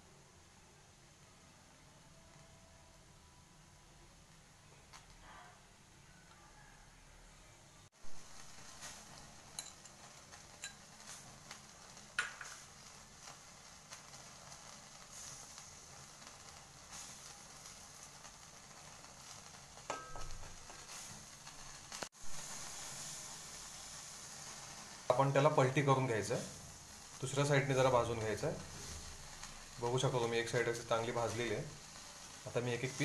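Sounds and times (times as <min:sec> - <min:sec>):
meat sizzling on a grill: 0:03.8 - 0:06.8, 0:07.9 - 0:33.0
crackling pops: 0:04.3 - 0:05.3, 0:08.0 - 0:33.0.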